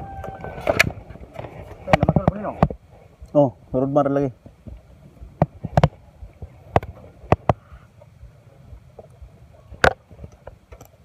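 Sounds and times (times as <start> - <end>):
sharp clicks and knocks: 5.4 - 7.6.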